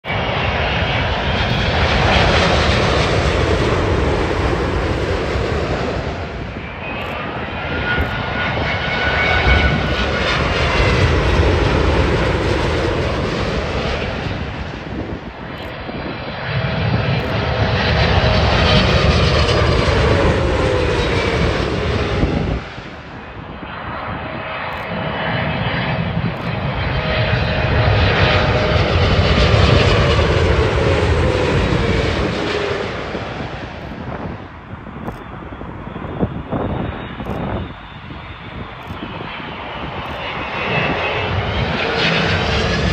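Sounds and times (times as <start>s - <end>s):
jet airliners passing overhead: 0.0s - 42.9s.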